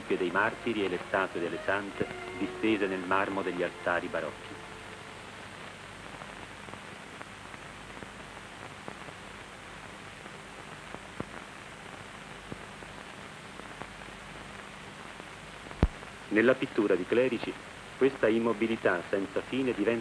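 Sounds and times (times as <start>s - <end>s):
film soundtrack hiss: 0.0s - 20.0s
faint clicks and pops: 5.6s - 16.1s.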